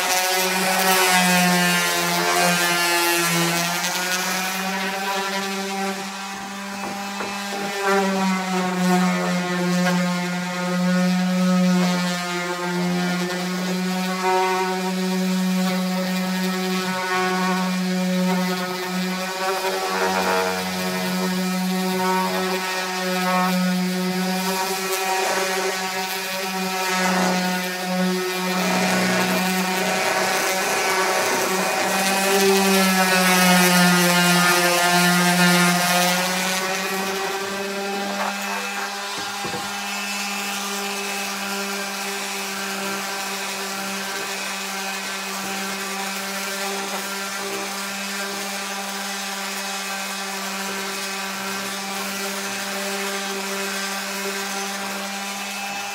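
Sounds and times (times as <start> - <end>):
orbital sander sanding wood: 0.0 - 55.9.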